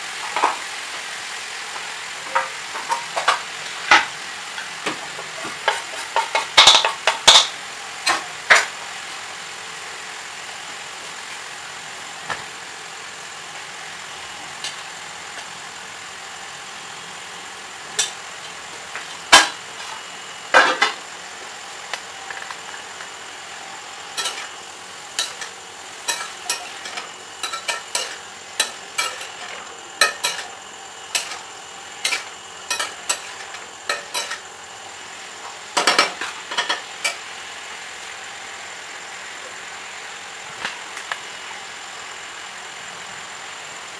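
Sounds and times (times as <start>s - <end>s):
vegetables sizzling in a pan: 0.0s - 43.9s
spatula clinking and scraping pan: 5.4s - 7.5s, 24.2s - 24.5s, 25.2s - 31.4s, 32.0s - 34.4s.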